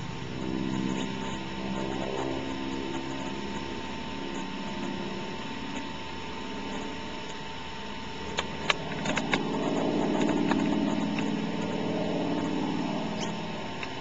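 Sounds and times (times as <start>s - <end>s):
propeller plane engine droning: 0.0s - 14.0s
sharp clicks: 8.3s - 11.3s.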